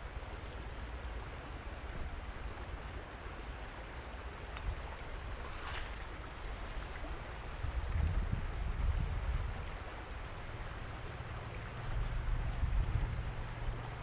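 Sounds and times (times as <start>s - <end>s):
stream running over stones: 0.0s - 14.0s
wind rumble on microphone: 4.5s - 14.0s.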